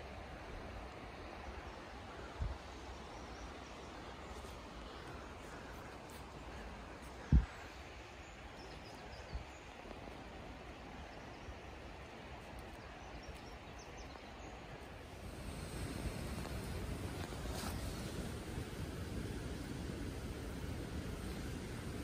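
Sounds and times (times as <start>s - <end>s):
low outdoor hush: 0.0s - 22.0s.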